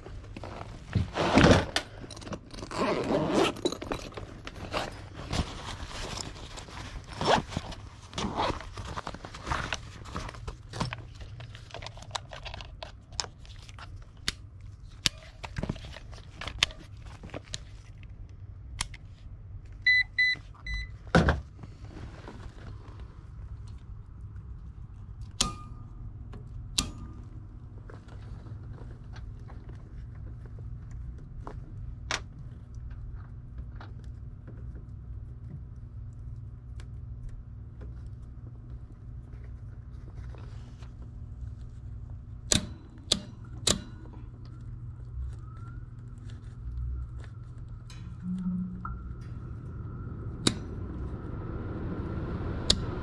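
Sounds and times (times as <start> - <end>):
tools rustling in a bag: 0.2 - 13.9
short electronic beeps: 48.2 - 49.2.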